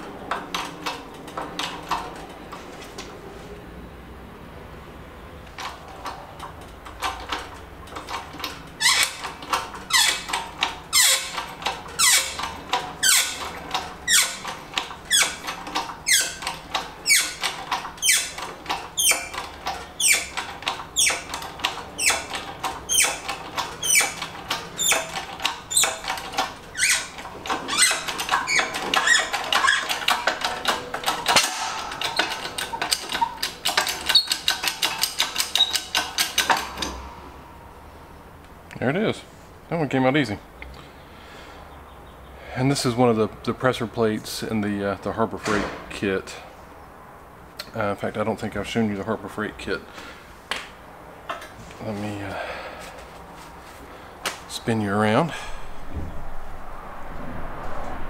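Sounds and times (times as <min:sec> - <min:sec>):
hydraulic press squeaking: 0:05.4 - 0:37.4.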